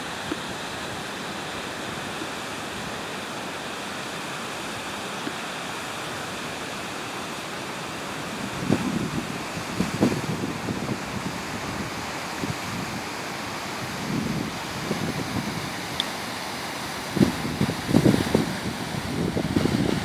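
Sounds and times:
rushing outdoor ambience: 0.0s - 20.0s
wind gusts buffeting microphone: 8.2s - 20.0s.

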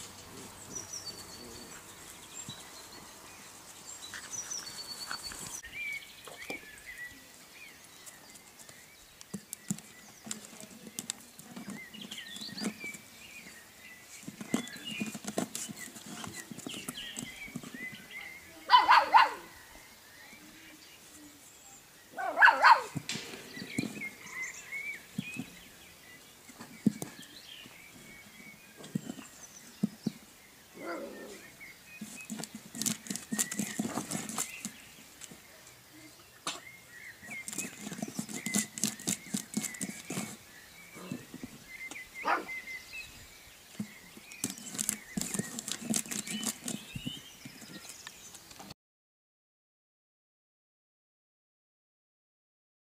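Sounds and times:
dog claws scratching wood: 9.3s - 13.5s, 14.1s - 18.0s, 32.0s - 35.3s, 37.2s - 40.4s, 43.8s - 48.5s
puppy yapping: 18.7s - 19.5s, 22.2s - 23.0s, 42.2s - 42.5s.

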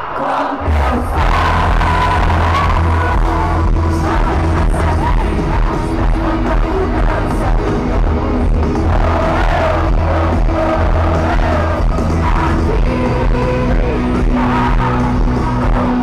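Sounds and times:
crowd singing and shouting: 0.0s - 16.0s
loud live worship music: 0.0s - 16.0s
person singing: 0.0s - 16.0s.

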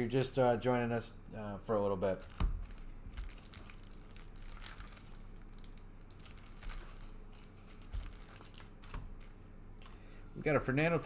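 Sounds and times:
faint electrical hum: 0.0s - 11.0s
wrappers crinkling: 2.1s - 10.0s.

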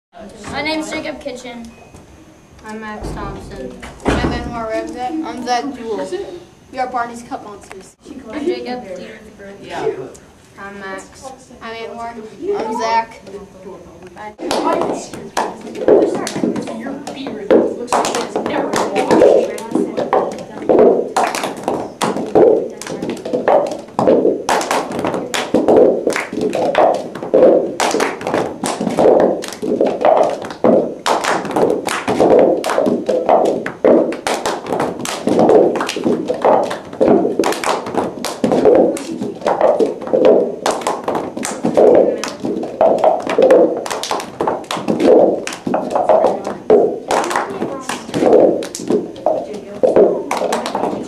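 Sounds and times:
hand slaps and claps: 14.4s - 51.0s
plastic cups tapped on carpet: 14.4s - 51.0s.

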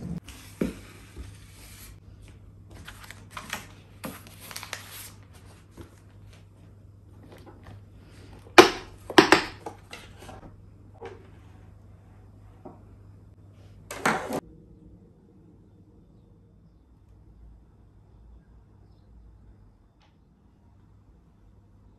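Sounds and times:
faint low hum: 0.0s - 21.9s.

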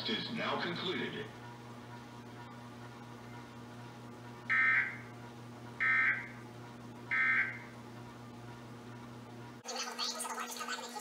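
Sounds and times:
low steady hum: 0.0s - 9.6s
two-tone digital squawks: 4.5s - 5.0s.

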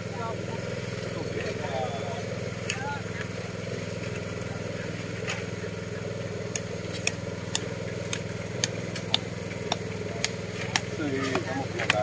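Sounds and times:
engine running low hum: 0.0s - 12.0s
sharp ticks: 6.4s - 11.0s.

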